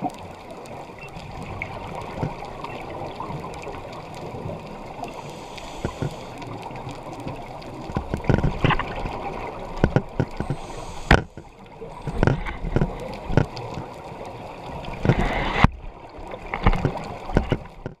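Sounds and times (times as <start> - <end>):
sharp underwater clicks: 0.0 - 18.0
underwater exhaust bubbles: 0.0 - 18.0.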